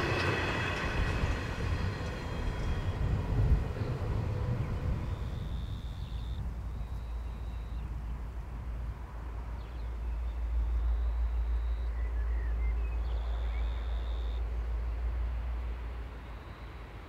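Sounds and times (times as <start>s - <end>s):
wind on microphone: 0.0s - 9.7s
distant diesel locomotive rumble: 0.0s - 17.0s.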